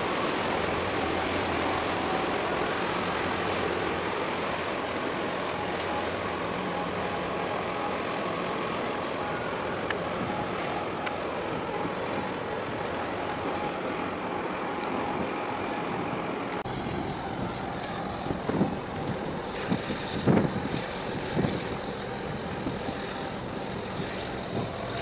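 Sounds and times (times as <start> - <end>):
steady motor rumble: 0.0 - 25.0
wind noise on microphone: 14.9 - 25.0.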